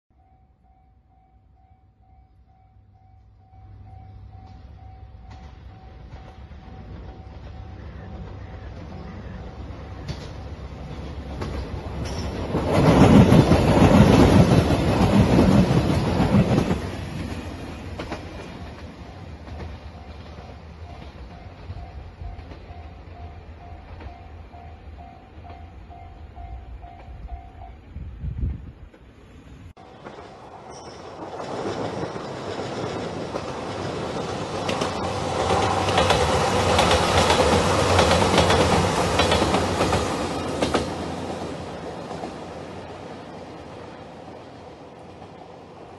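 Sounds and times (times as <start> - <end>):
diesel train passing: 0.1 - 45.9.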